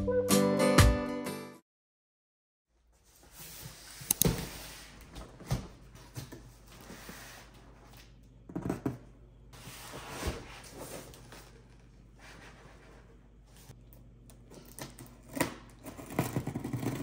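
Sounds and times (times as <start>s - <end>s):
cardboard rustling: 9.6s - 13.7s.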